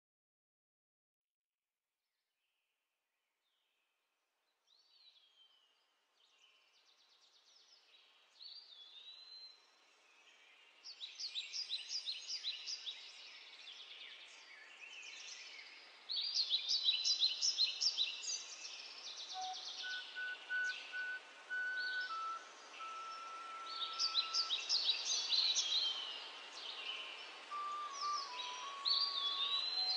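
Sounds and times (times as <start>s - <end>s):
light steady hiss: 4.5s - 29.9s
birds singing: 10.2s - 29.9s.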